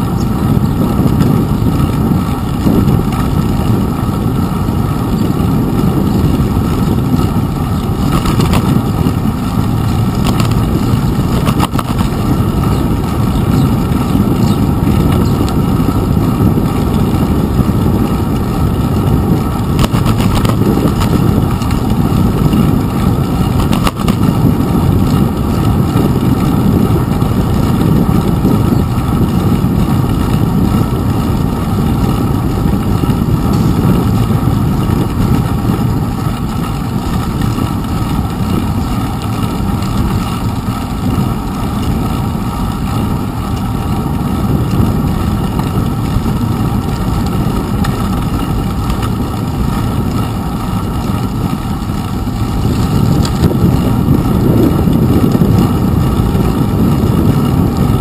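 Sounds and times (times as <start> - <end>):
bicycle rumbling over wet pavement: 0.0 - 58.0
sharp knocks over bumps: 8.0 - 9.2, 10.2 - 12.2.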